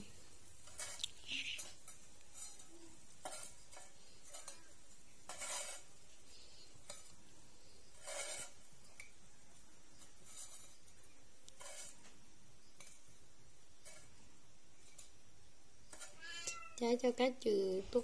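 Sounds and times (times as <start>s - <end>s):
chopsticks scraping metal plate: 0.6s - 9.2s, 9.9s - 12.2s, 12.8s - 13.1s, 13.8s - 15.2s, 15.8s - 16.8s.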